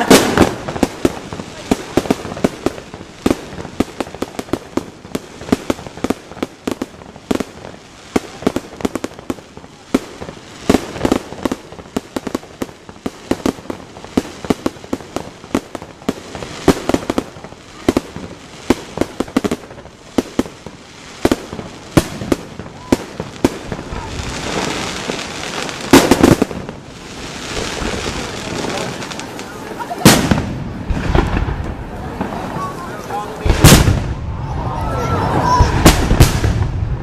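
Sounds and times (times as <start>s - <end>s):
fireworks bangs and crackling: 0.0s - 37.0s.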